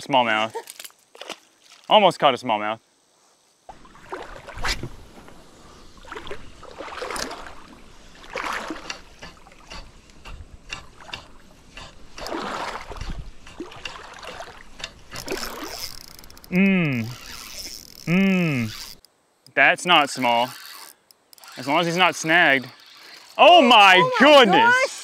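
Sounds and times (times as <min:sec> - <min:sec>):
water sloshing and splashing: 0:00.7 - 0:02.0, 0:03.7 - 0:16.5.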